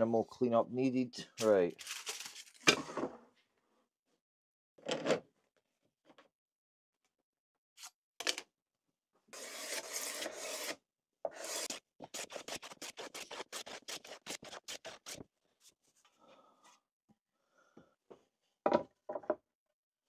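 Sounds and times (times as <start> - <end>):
hand plane shaving wood: 9.4 - 15.2.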